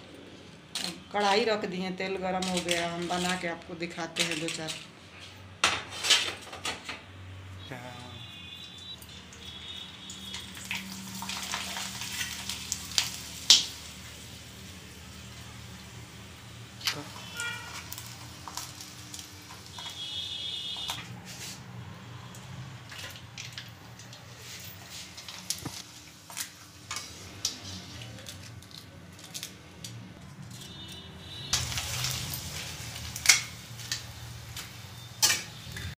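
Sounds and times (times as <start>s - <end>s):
oil sizzling: 8.2s - 28.3s, 31.4s - 36.0s
metal spatula clinking and scraping: 34.6s - 35.6s.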